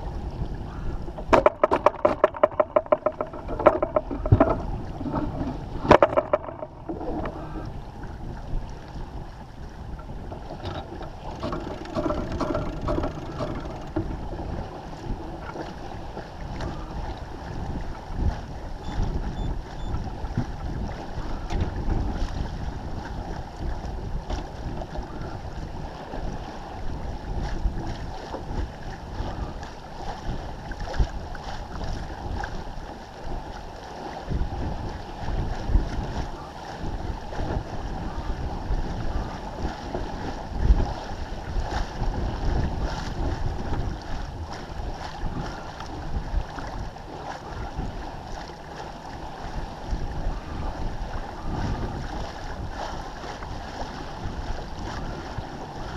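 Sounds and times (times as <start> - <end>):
water rushing along hull: 0.0 - 55.9
wind buffeting microphone: 0.0 - 55.9
knocks: 1.2 - 5.3, 5.9 - 7.4, 10.6 - 14.1.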